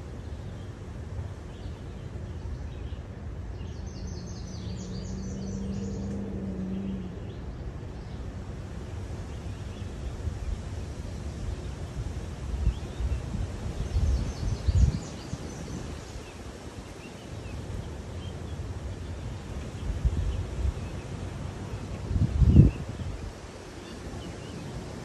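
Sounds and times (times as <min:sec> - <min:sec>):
car road and wind rumble: 0:00.0 - 0:25.0.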